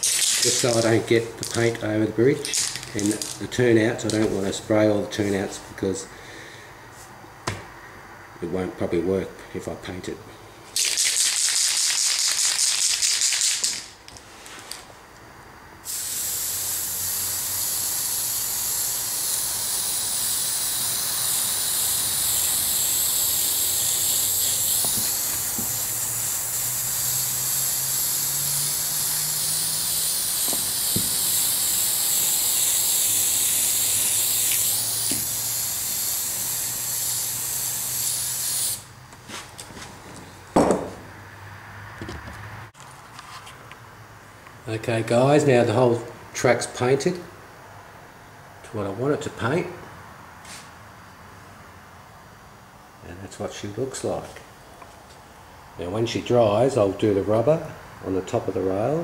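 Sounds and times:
spray can rattling: 0.0 - 4.4, 10.8 - 14.0, 15.9 - 38.8
spray paint hissing: 0.0 - 4.5, 10.8 - 14.0, 15.8 - 38.9
sharp knock: 40.6 - 41.0.

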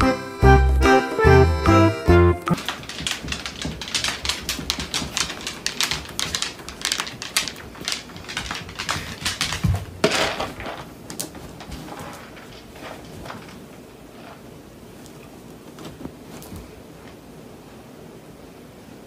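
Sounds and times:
food bowl clattering: 2.6 - 11.0
dog crunching kibble: 2.6 - 11.3.

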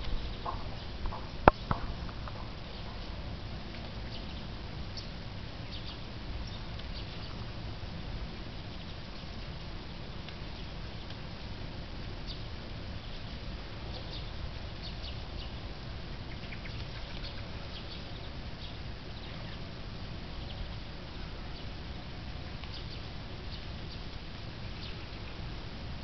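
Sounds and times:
birds calling: 0.0 - 3.2
low background rumble: 0.0 - 26.0.

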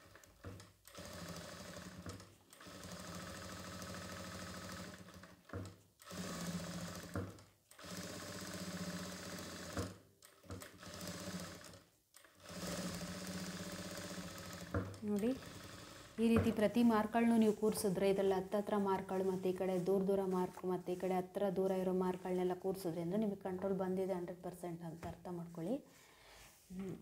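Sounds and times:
industrial sewing machine stitching: 0.0 - 16.4.

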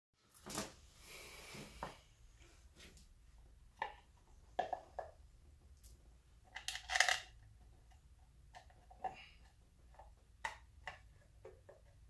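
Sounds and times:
clatter of parts or tools: 6.5 - 7.4.

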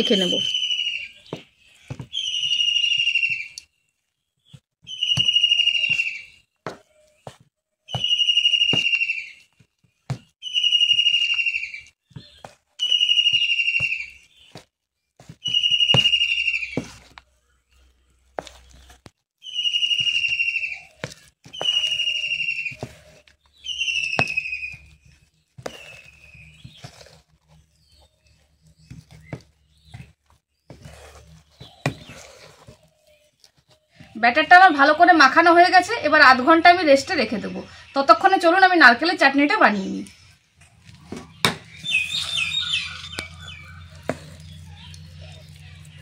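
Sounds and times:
high whistle-like tone: 0.0 - 1.2, 4.9 - 6.3, 7.9 - 9.3, 12.8 - 14.2, 21.6 - 23.0, 23.7 - 24.9.

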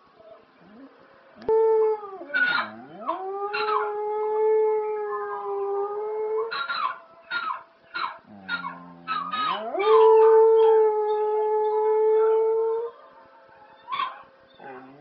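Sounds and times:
dog howling: 0.3 - 15.0.

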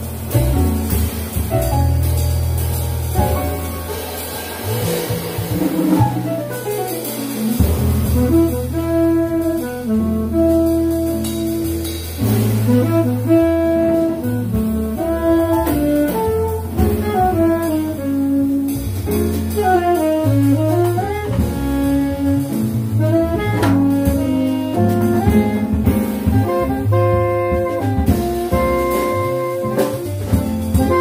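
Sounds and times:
drum kit: 0.0 - 31.0
piano: 0.0 - 31.0
upright bass: 0.0 - 31.0
alto saxophone: 6.1 - 31.0
tenor saxophone: 7.5 - 31.0.

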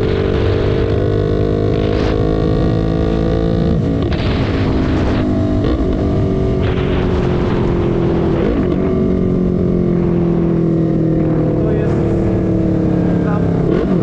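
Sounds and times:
motorcycle engine running: 0.0 - 14.0
rushing wind noise: 0.0 - 14.0.

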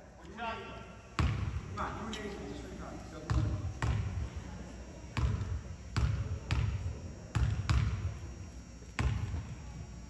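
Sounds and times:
basketball bouncing on gym floor: 1.2 - 1.7, 3.3 - 4.3, 5.1 - 8.2, 9.0 - 9.6.

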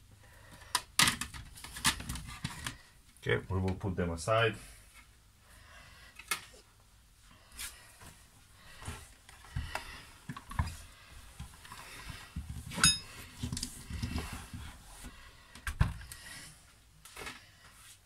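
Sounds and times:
plastic knocks and clatters: 0.7 - 2.8.

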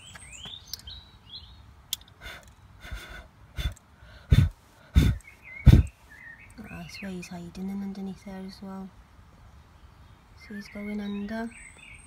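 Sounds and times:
birds chirping: 0.0 - 12.0
person blowing puffs of breath: 2.2 - 5.9
breath rumble on microphone: 2.2 - 6.0.

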